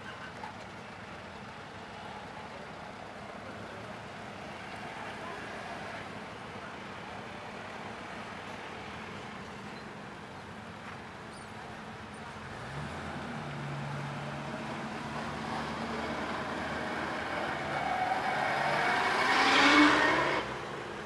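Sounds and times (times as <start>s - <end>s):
cars driving past: 12.4s - 21.0s.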